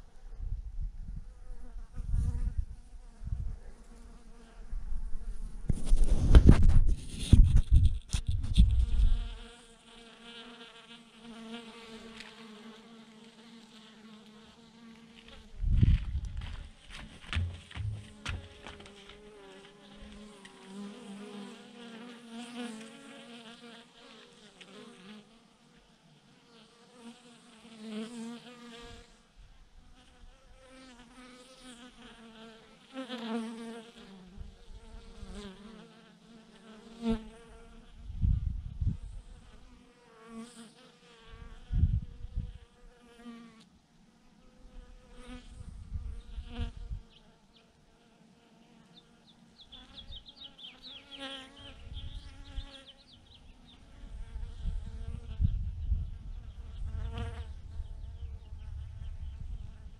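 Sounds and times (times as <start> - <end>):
bees buzzing: 16.4 - 25.4, 45.0 - 55.4.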